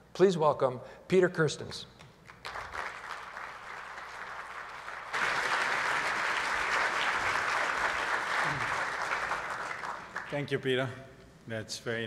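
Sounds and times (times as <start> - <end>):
audience applauding: 2.3 - 10.6.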